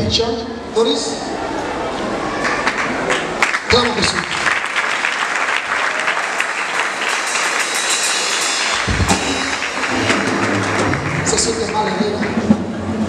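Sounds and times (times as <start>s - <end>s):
crowd applauding: 1.3s - 13.0s.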